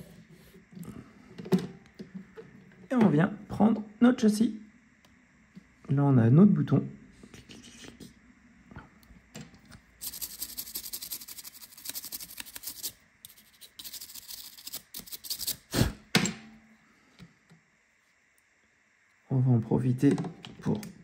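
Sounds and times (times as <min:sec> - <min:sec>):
crackly scratching on smartphone parts: 0:10.0 - 0:15.7.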